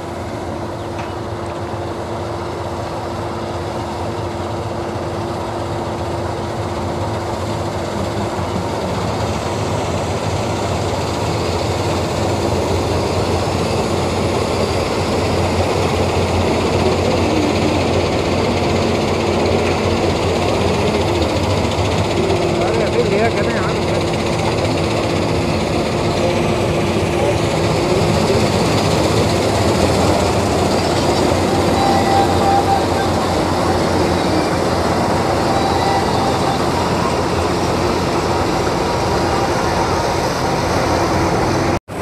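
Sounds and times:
combine harvester running: 0.0 - 42.0.

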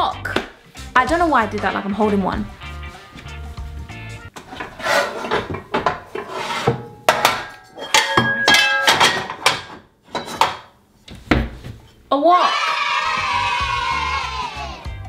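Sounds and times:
pots and pans clattering: 4.3 - 10.8.

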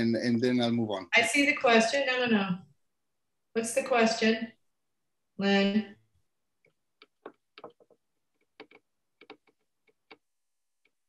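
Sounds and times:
typing on computer keyboard: 6.6 - 11.0.

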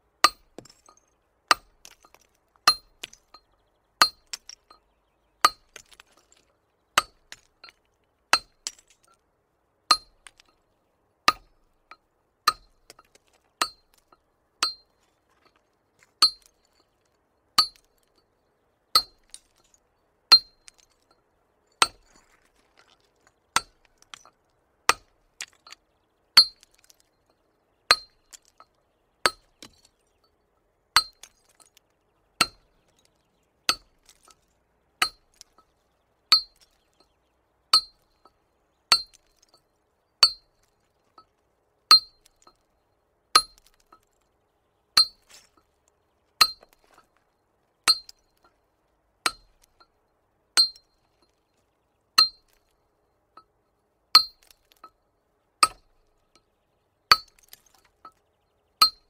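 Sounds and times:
small hammer striking stone: 0.2 - 4.8, 5.4 - 6.4, 7.0 - 9.2, 9.9 - 10.5, 11.3 - 16.6, 17.6 - 18.0, 19.0 - 21.1, 21.8 - 22.9, 23.5 - 27.1, 27.9 - 30.1, 31.0 - 31.8, 32.4 - 33.1, 33.7 - 34.4, 35.0 - 35.7, 36.3 - 37.1, 37.7 - 39.6, 40.2 - 40.5, 41.9 - 42.6, 43.4 - 44.1, 45.0 - 45.5, 46.4 - 47.1, 47.9 - 48.2, 49.2 - 49.9, 50.6 - 50.9, 52.2 - 52.6, 54.2 - 55.0, 55.6 - 56.0, 57.1 - 58.2, 58.8 - 59.0.

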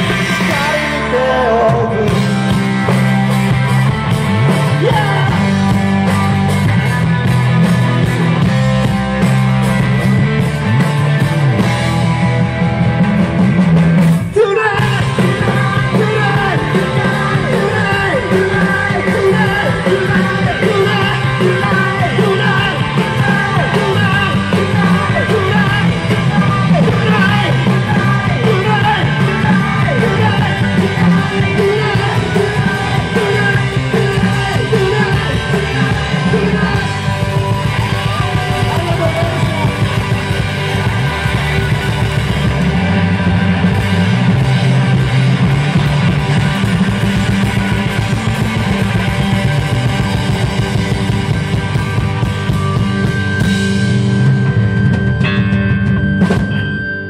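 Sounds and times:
person singing: 0.0 - 2.5, 4.6 - 5.6, 14.3 - 40.2
bass guitar: 0.0 - 57.0
drums: 0.0 - 57.0
electric guitars: 0.0 - 57.0.

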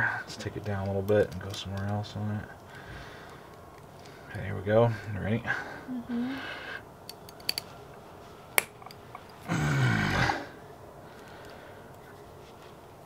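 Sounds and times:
man grunting with effort: 9.5 - 10.5.

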